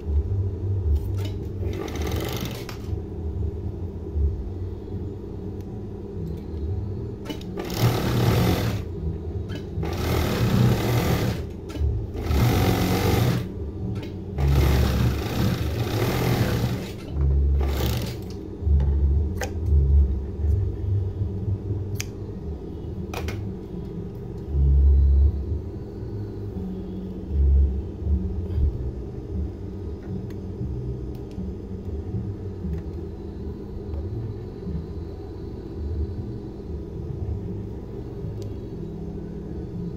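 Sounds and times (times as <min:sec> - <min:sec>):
low hum: 0:00.0 - 0:39.9
sewing machine stitching: 0:01.6 - 0:02.9, 0:07.3 - 0:08.9, 0:09.8 - 0:11.5, 0:12.2 - 0:13.5, 0:14.4 - 0:18.3.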